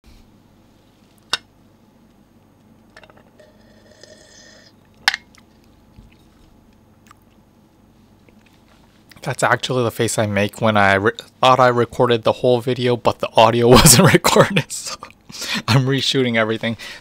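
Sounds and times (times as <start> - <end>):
person slurping from a cup: 3.4 - 4.8.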